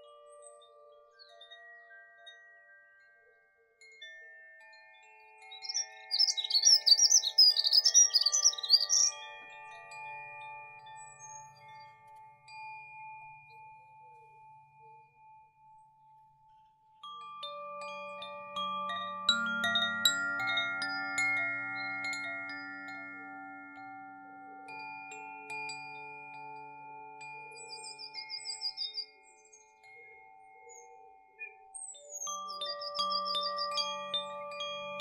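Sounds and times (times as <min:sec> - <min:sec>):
wind chimes ringing: 0:00.0 - 0:35.0
songbird warbling: 0:05.6 - 0:09.2.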